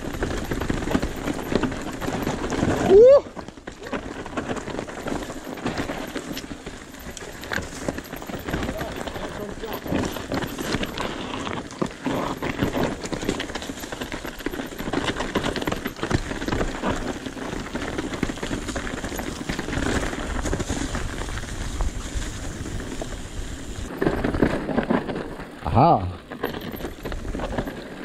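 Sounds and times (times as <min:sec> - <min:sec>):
bike rattling and clicking: 0:00.0 - 0:28.0
tyres crunching over stones: 0:00.0 - 0:28.0
wind rumble on microphone: 0:17.6 - 0:25.3.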